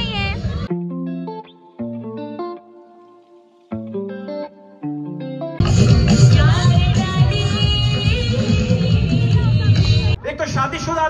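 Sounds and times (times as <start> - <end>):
plucked guitar notes: 0.0 - 10.2
loud full music: 5.6 - 10.2.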